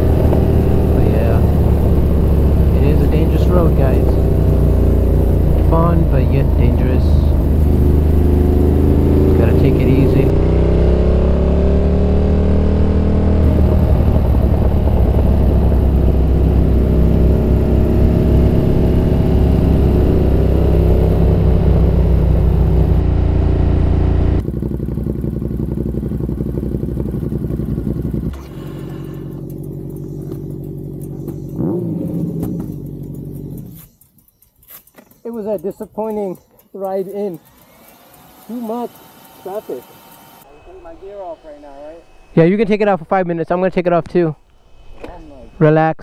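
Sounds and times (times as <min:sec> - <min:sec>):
motorcycle engine running: 0:00.0 - 0:34.2.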